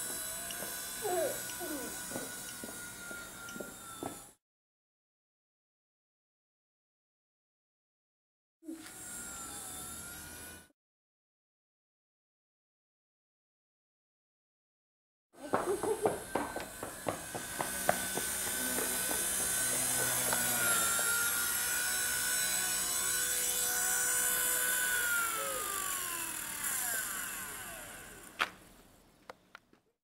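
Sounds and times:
rc helicopter rotor whining: 0.0 - 4.4, 8.7 - 10.7, 15.4 - 28.7.

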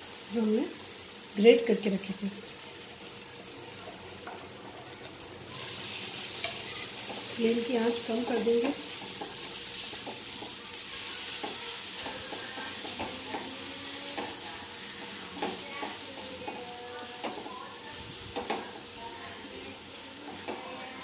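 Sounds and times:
food sizzling in a pan: 0.0 - 21.0
spatula scraping and knocking pan: 6.4 - 17.6.

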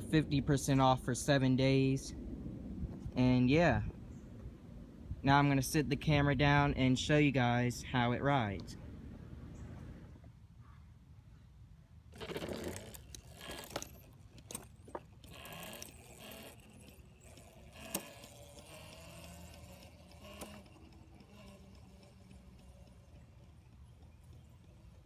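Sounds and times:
electric go-kart chain drive rattling: 12.1 - 25.0.

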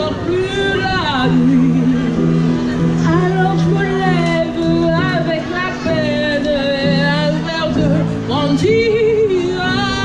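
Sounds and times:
woman singing: 0.0 - 2.2, 3.0 - 10.0
upright piano accompaniment: 0.0 - 10.0.

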